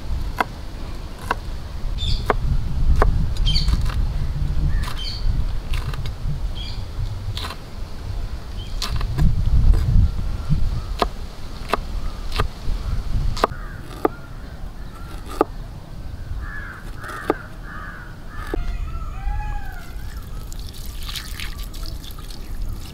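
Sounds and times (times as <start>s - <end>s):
low rumble: 0.0s - 10.9s
cleaver chopping on wooden board: 1.2s - 1.4s, 11.0s - 12.5s, 13.4s - 14.2s, 15.0s - 15.5s, 16.8s - 17.5s
crow cawing: 13.5s - 15.2s, 16.4s - 20.5s.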